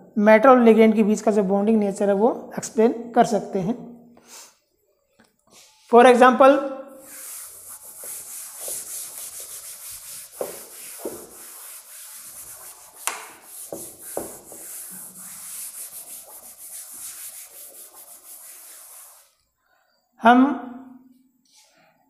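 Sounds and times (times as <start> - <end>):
chalk wiped off chalkboard: 7.0 - 19.4
knocks against board: 13.0 - 14.4.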